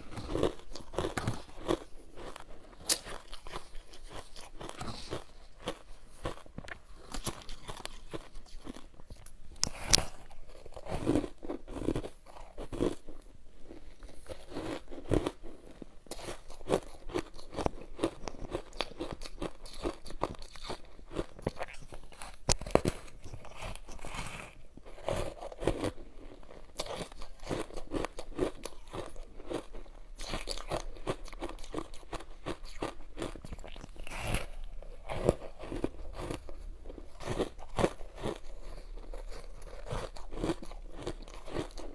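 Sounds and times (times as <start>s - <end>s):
crunching bites of ice: 26.8s - 41.9s.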